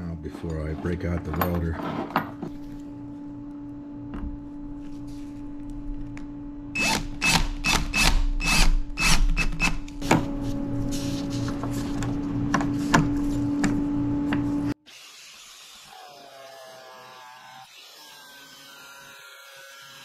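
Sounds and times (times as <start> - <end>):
cordless drill whirring: 6.8 - 10.0.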